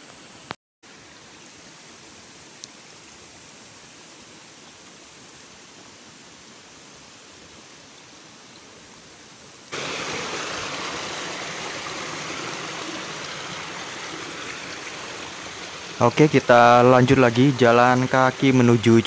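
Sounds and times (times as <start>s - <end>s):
stream water rushing: 9.7s - 19.0s.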